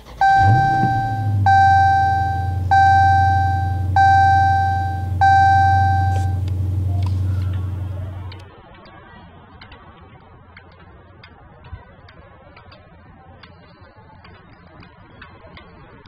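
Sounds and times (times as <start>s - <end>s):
car engine revving and idling: 0.0s - 8.4s
seatbelt reminder chime: 0.0s - 8.4s.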